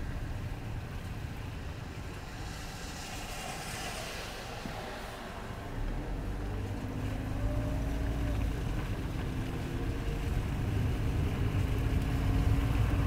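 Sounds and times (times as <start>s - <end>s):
car driving on slushy road: 0.0s - 13.0s.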